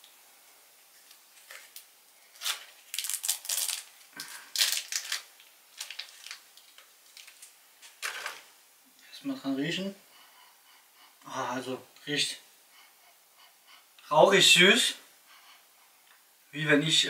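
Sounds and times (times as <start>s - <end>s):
plastic wrapper crinkling and tearing: 1.4s - 8.4s.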